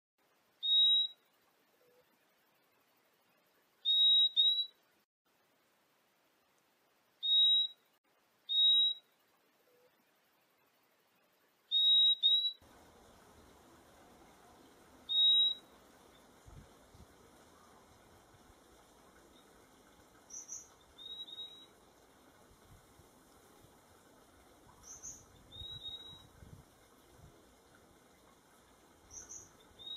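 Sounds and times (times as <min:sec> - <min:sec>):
faint background hiss: 0:00.2 - 0:29.9
bird whistled calls: 0:00.6 - 0:01.2, 0:03.8 - 0:04.7, 0:07.2 - 0:07.8, 0:08.5 - 0:09.0, 0:11.7 - 0:12.6, 0:15.0 - 0:15.7, 0:20.3 - 0:21.7, 0:24.8 - 0:26.3, 0:29.1 - 0:29.9.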